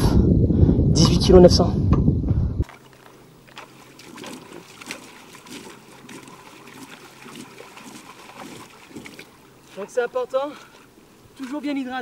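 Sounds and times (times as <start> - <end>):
water splashing against boat: 2.6 - 12.0.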